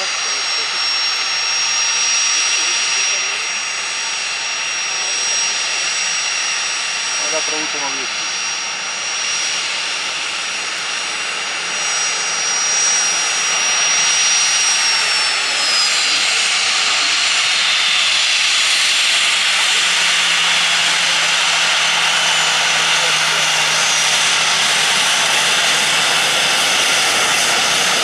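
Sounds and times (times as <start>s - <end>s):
jet engines rushing whine: 0.0s - 28.0s.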